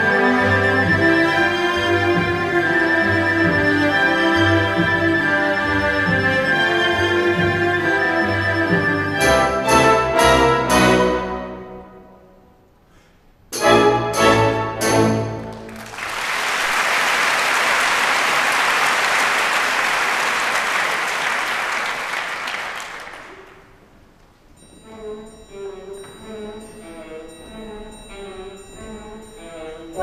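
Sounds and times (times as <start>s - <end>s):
soft orchestral music: 0.0s - 12.8s, 13.5s - 15.9s, 23.8s - 30.0s
audience applauding: 15.4s - 23.8s.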